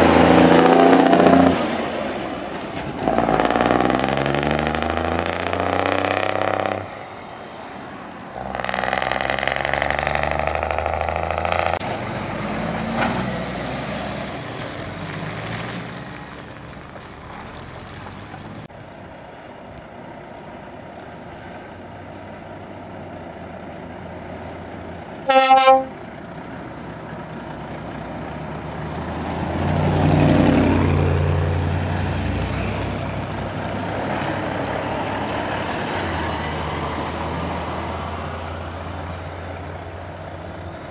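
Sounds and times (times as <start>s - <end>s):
diesel truck engine pulling past: 0.0s - 40.9s
heavy lorries passing: 0.0s - 40.9s
truck horn toot: 25.3s - 26.1s.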